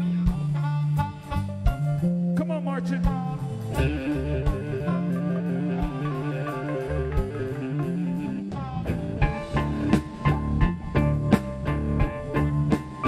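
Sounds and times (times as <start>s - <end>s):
blues-funk band playing: 0.0s - 13.0s.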